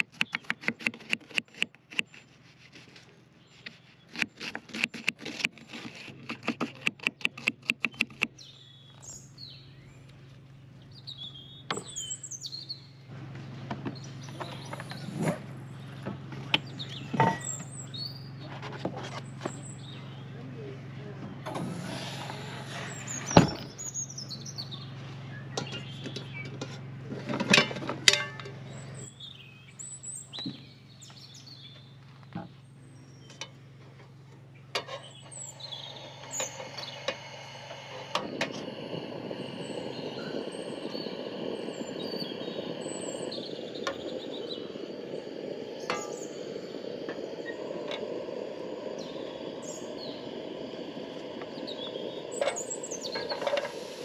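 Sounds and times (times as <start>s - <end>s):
birds chirping: 0.0s - 54.0s
low steady hum: 7.6s - 54.0s
steady rushing noise: 19.6s - 24.7s, 34.7s - 54.0s.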